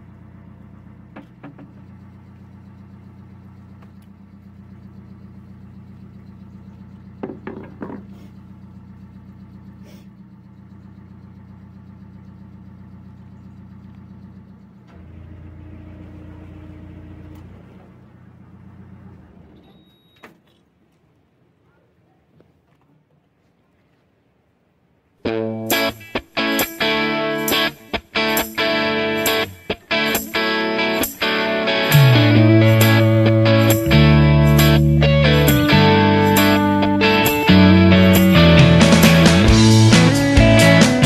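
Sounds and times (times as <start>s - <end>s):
boat diesel engine running: 0.0s - 19.6s, 25.7s - 41.0s
sharp knocks: 7.2s - 8.2s
short high beep: 19.6s - 20.3s.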